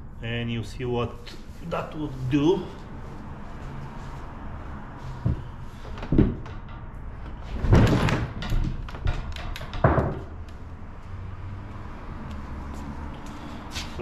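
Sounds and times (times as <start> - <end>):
gear clattering and knocking: 5.2 - 10.7.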